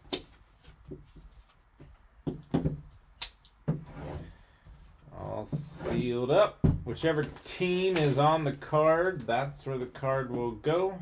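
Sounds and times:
rustle of shrink wrap: 7.1 - 9.3.

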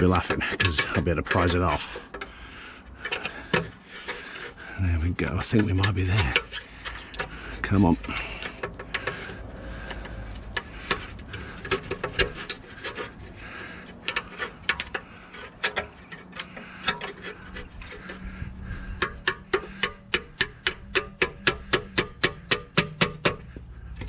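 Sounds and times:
steel tool scraping metal: 0.0 - 23.6
hammer tapping metal: 19.0 - 23.6.

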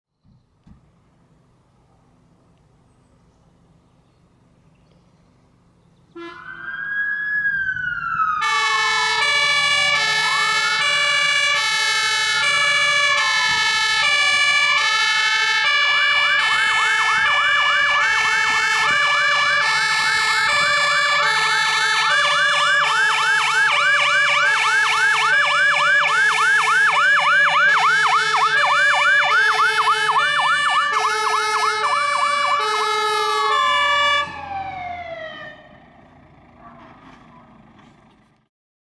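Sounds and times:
two-tone horn: 6.2 - 6.5, 30.9 - 34.2
siren wailing and yelping: 6.2 - 35.8
truck engine running: 8.4 - 38.5.

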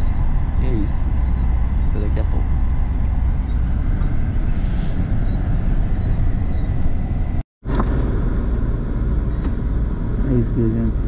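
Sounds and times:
bus engine and road noise: 0.0 - 11.0.

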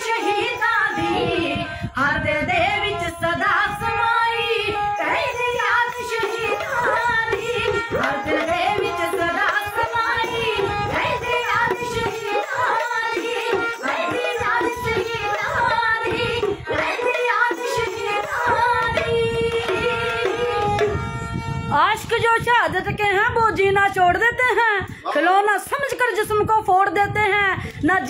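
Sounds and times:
women singing: 0.0 - 21.0
hand drums beating: 5.7 - 21.0.

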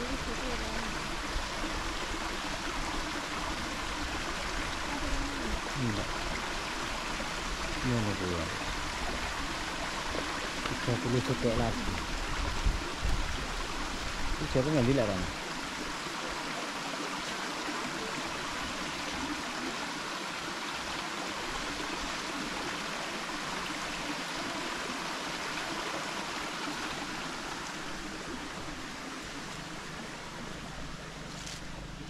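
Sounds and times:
stream water rushing: 0.0 - 32.0.

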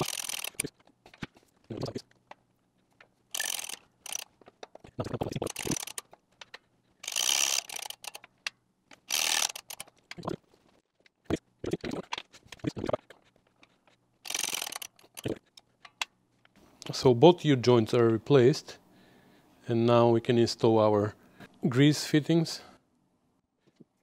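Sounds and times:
metal parts clinking and clunking: 0.0 - 10.7, 13.2 - 16.6.

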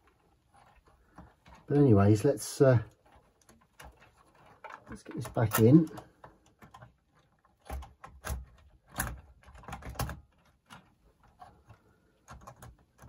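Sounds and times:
small plastic clicks and knocks: 2.9 - 13.0.

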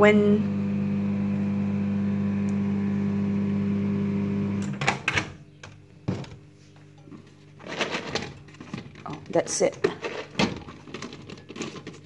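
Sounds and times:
microwave oven humming: 0.0 - 5.4.

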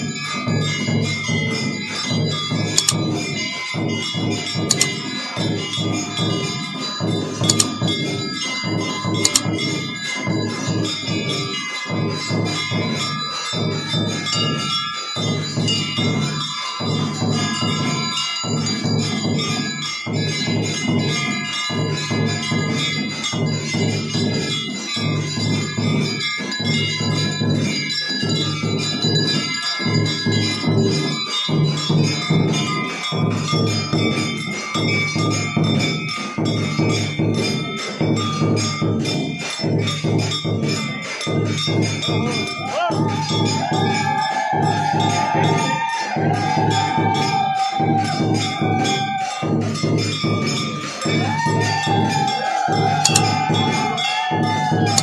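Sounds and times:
wavering high-pitched tone: 0.0 - 34.2, 52.9 - 55.0
rhythmic devotional music: 0.0 - 55.0
temple bells ringing: 0.0 - 55.0.

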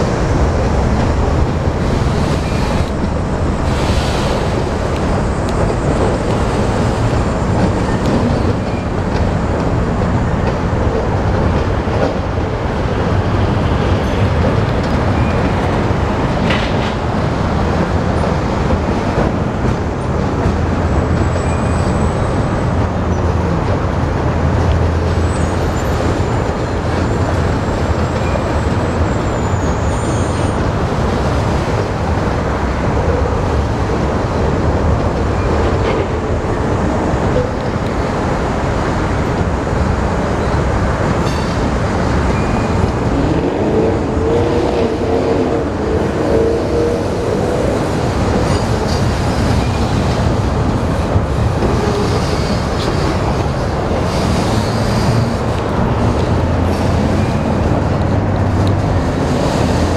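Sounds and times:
freight train wheels rumbling: 0.0 - 59.9
wheel squeal: 28.1 - 30.6.

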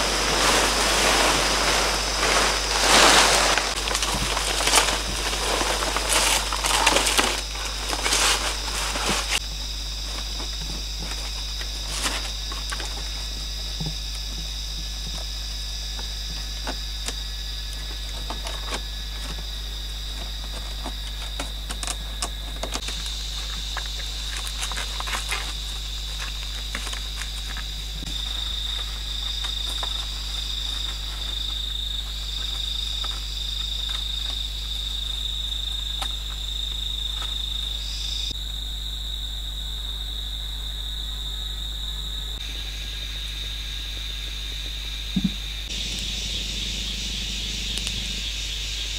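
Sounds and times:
dry palm leaves rustling: 0.0 - 38.0
insects droning: 0.0 - 48.9
pulsing insect call: 0.0 - 48.9.

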